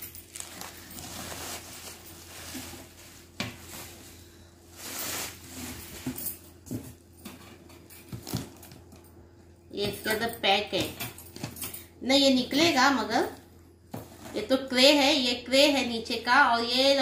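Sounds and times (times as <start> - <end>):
plastic packaging crinkling: 0.0 - 6.1.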